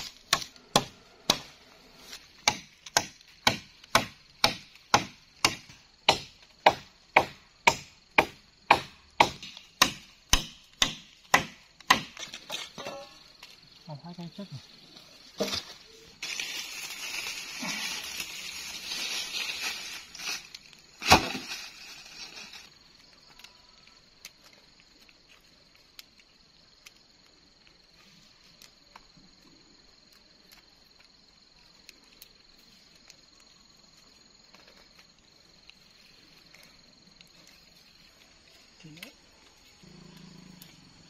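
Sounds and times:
wooden poles being handled: 0:09.4 - 0:13.7
high-pitched insect drone: 0:12.5 - 0:24.2
vegetation rustling and crackling: 0:14.5 - 0:29.4, 0:30.0 - 0:39.8
faint small ticks: 0:22.8 - 0:41.0.

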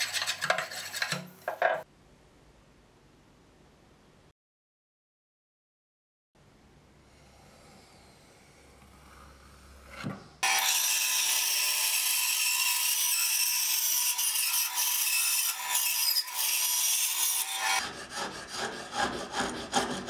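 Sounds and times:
spokeshave scraping wood: 0:00.0 - 0:01.8
bandsaw cutting wood: 0:09.0 - 0:20.0.

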